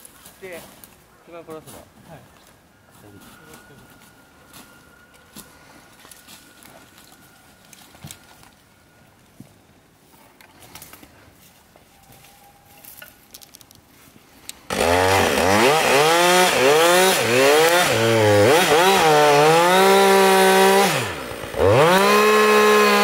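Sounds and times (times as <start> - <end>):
chainsaw revving: 14.7 - 23.0.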